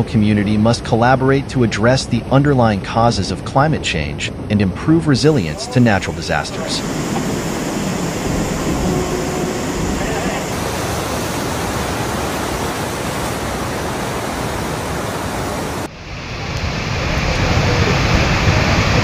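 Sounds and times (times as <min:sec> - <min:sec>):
river rushing: 0:05.2 - 0:19.0.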